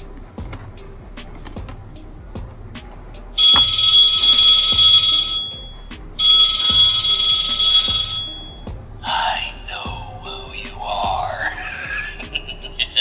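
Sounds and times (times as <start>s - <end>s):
high-pitched electronic ringing: 3.4s - 8.7s.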